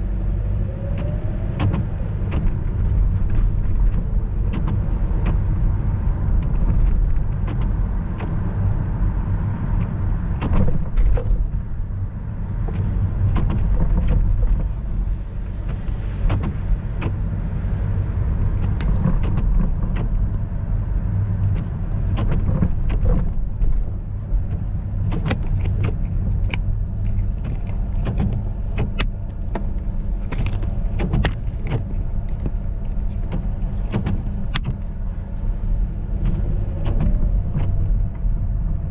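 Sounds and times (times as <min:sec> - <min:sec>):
low road rumble: 0:00.0 - 0:38.9
sharp clicks and ticks: 0:25.0 - 0:34.9.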